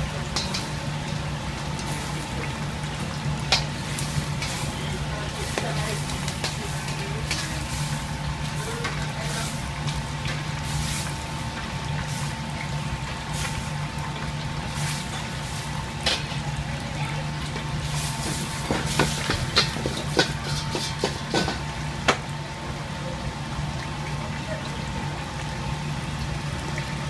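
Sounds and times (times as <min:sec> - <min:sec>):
metal spatula scraping wok: 0:17.8 - 0:21.6.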